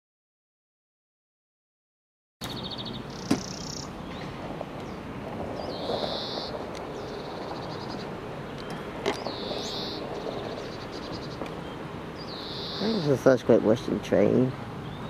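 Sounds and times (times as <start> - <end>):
high-pitched bird calls: 2.4 - 4.2, 5.6 - 13.4
background rumble: 2.6 - 12.4.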